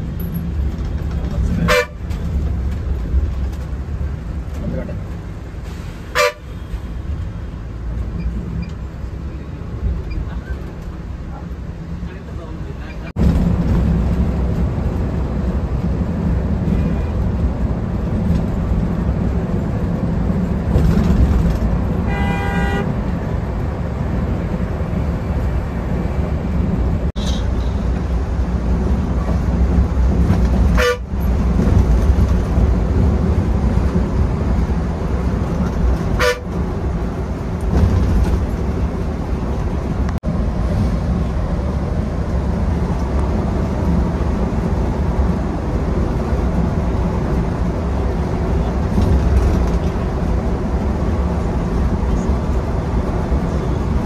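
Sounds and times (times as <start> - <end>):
bus engine rumble: 0.0 - 54.0
road noise: 0.0 - 54.0
vehicle horn: 1.6 - 2.0, 6.1 - 6.7, 22.0 - 23.0, 30.7 - 31.1, 36.2 - 36.6.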